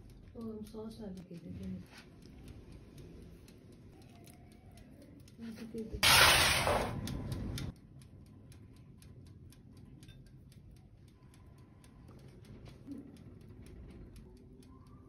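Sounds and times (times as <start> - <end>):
faint steady ticking: 0.0 - 6.0, 7.0 - 15.0
loud burst of noise: 6.0 - 7.1.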